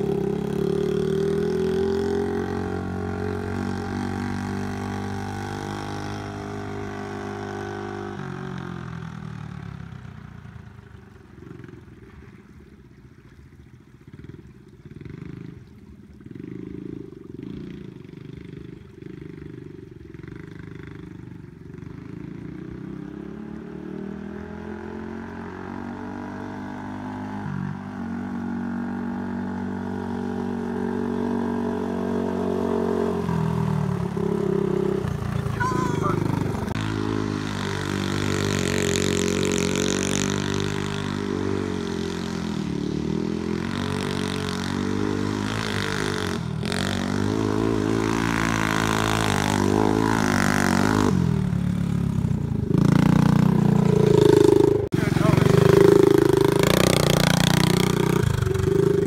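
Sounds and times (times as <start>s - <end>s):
small engine running and revving: 0.0s - 13.0s, 14.0s - 59.0s.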